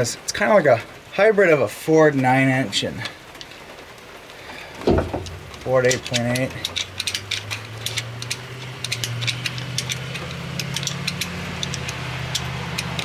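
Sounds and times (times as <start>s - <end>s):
light clicks and ticks: 3.0s - 13.0s.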